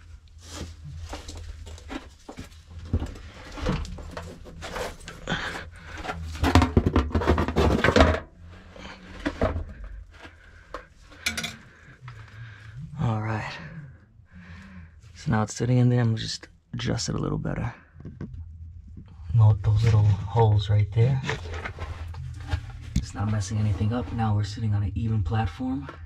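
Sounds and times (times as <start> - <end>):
knocks scrapes and clatter: 0.4 - 11.9, 19.7 - 24.4.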